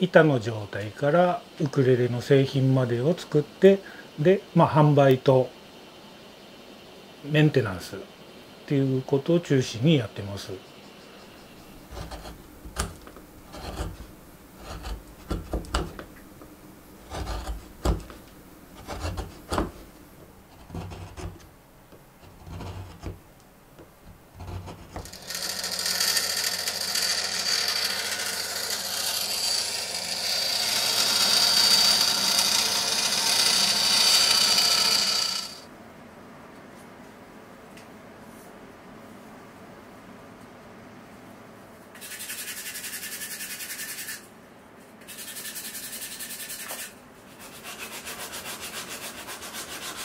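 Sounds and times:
chisel scraping wood: 0:11.2 - 0:23.2, 0:23.8 - 0:35.6, 0:45.0 - 0:50.0
electric saw whining: 0:25.0 - 0:35.6.

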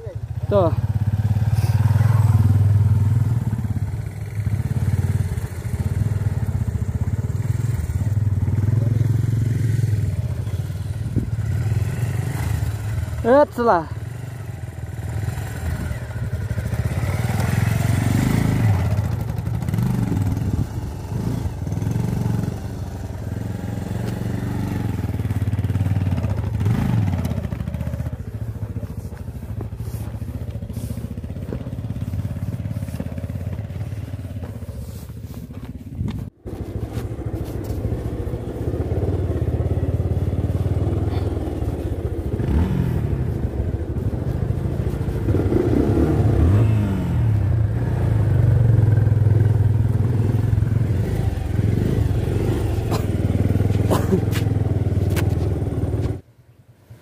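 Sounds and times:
motorcycle engine revving: 0:00.0 - 0:56.3.

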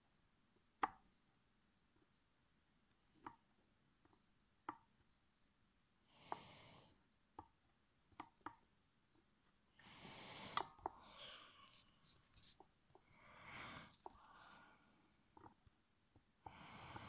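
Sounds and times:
soft hisses: 0:09.8 - 0:15.2.

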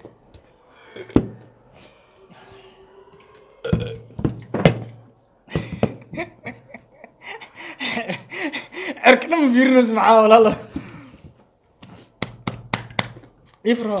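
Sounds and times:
man burping: 0:00.9 - 0:01.4, 0:03.6 - 0:04.2.

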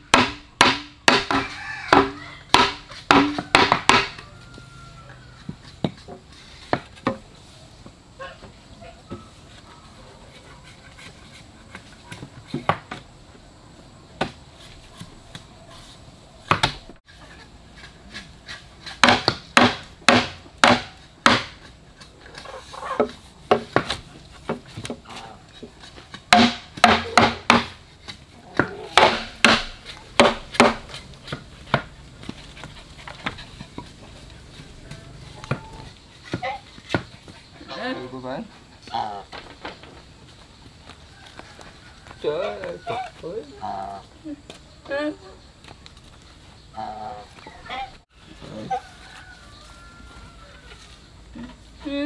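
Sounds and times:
chopping strikes on wood: 0:00.0 - 0:04.2, 0:16.5 - 0:16.9, 0:18.5 - 0:21.7, 0:23.0 - 0:25.0, 0:26.3 - 0:27.8, 0:28.5 - 0:32.4.

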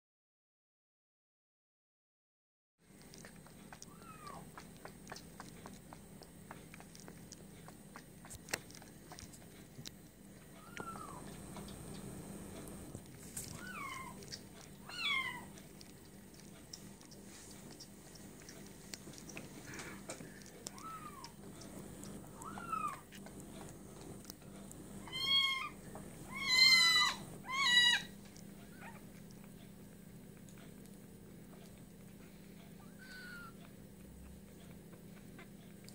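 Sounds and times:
kitten sucking clicks: 0:02.9 - 0:25.3, 0:26.0 - 0:35.9
kitten mew: 0:20.7 - 0:21.4.

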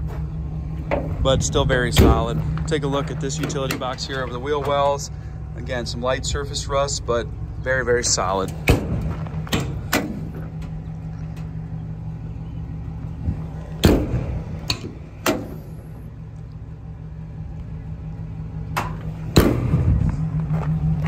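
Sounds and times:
metal compartment doors clunking: 0:00.0 - 0:16.0, 0:18.5 - 0:20.6
steady low hum: 0:00.0 - 0:21.0
latch clicks: 0:13.8 - 0:15.6.

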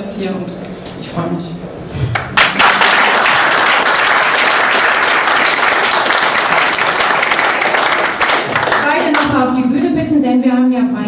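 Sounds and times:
audience applauding: 0:02.1 - 0:09.4.

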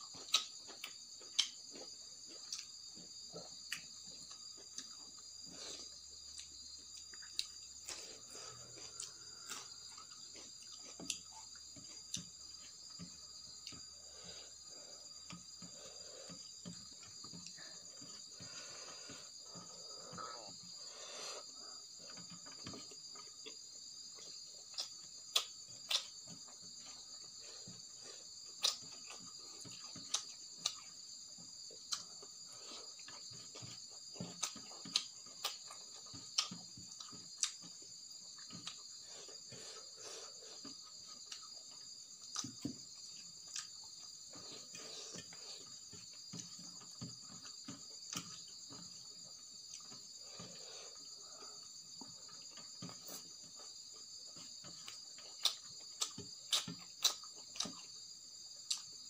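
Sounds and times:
chewing mouth clicks and smacks: 0:00.1 - 0:02.8, 0:03.4 - 0:08.1, 0:24.2 - 0:27.0, 0:28.4 - 0:31.0, 0:54.6 - 0:58.0, 0:58.6 - 0:59.0.

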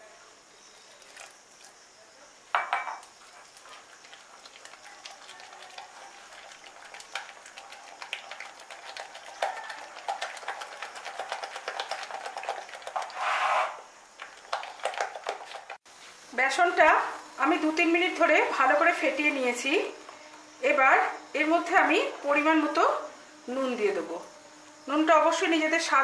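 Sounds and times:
batter slapping and squelching: 0:03.4 - 0:13.2, 0:14.2 - 0:15.8.

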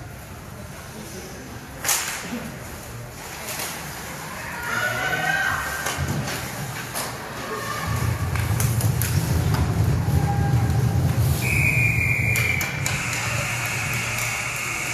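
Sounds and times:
heavy low rumble: 0:07.9 - 0:12.1
hockey sticks and puck clacking: 0:12.2 - 0:14.9.

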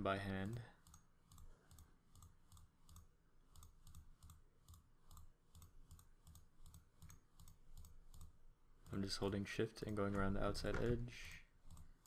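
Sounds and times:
computer mouse clicks: 0:00.4 - 0:09.1, 0:11.6 - 0:12.0.

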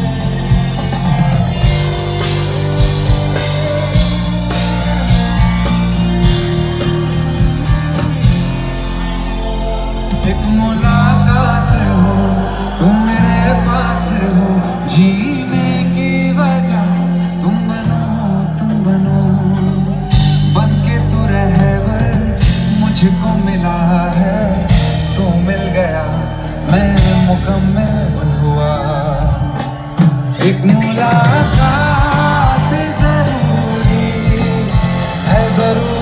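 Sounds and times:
drums with cymbal crashes: 0:00.0 - 0:10.1, 0:14.9 - 0:20.8, 0:26.7 - 0:27.7, 0:29.4 - 0:36.0
bass line: 0:00.0 - 0:36.0
man singing: 0:00.0 - 0:36.0.

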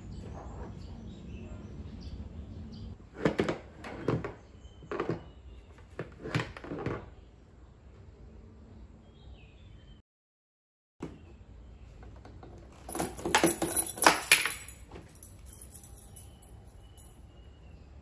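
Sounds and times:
hard plastic knocks and rattles: 0:03.2 - 0:07.1, 0:12.0 - 0:15.3.

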